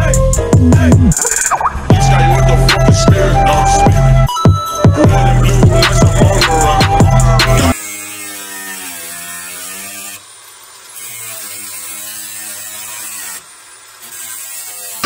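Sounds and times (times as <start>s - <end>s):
power tool motor whirring: 5.3s - 15.0s.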